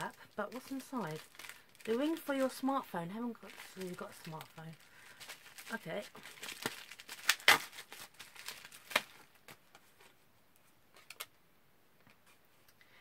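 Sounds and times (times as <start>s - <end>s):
bubble wrap pouch tearing: 0.0s - 9.6s.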